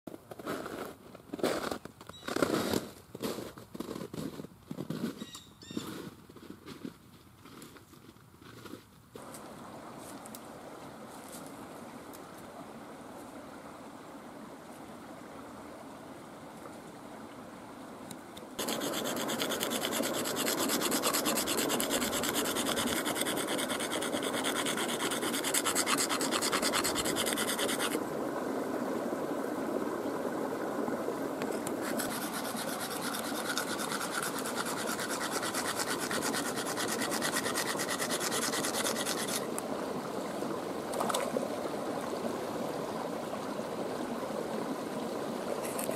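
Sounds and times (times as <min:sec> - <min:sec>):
shell scraping on stone: 0:18.6 - 0:28.0, 0:31.6 - 0:39.4.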